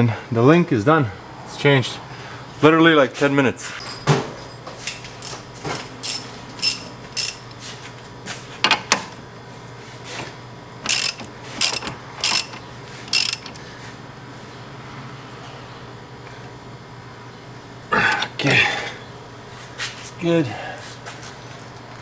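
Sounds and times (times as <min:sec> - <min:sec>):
hand ratchet clicking: 0:06.0 - 0:07.6, 0:10.8 - 0:13.6.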